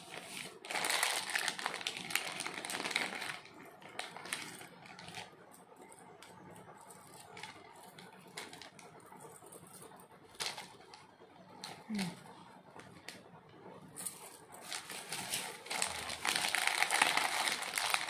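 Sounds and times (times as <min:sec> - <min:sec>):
plastic bag crinkling: 0:00.0 - 0:05.4, 0:14.3 - 0:18.0.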